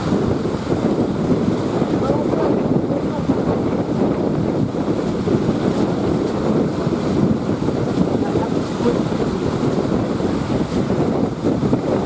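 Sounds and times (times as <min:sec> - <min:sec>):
surf breaking: 0:00.0 - 0:12.0
wind on microphone: 0:00.0 - 0:12.0.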